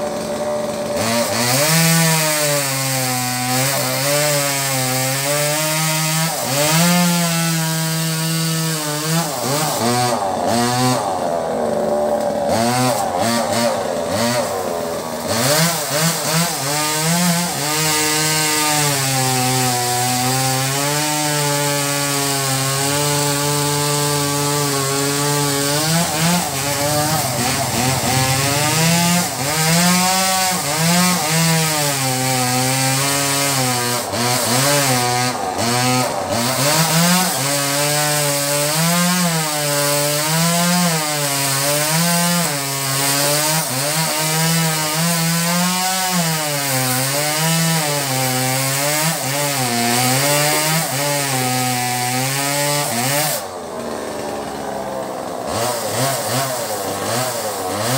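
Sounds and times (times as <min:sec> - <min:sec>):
chainsaw cutting wood: 0:00.0 - 0:57.9.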